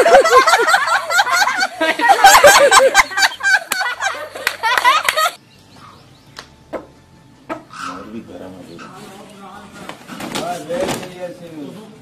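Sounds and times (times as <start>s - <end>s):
high-pitched shrieking cries: 7.7s - 9.1s.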